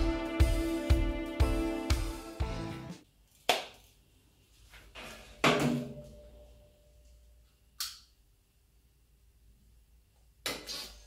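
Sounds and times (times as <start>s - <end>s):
knocks in small room: 5.4s - 6.3s.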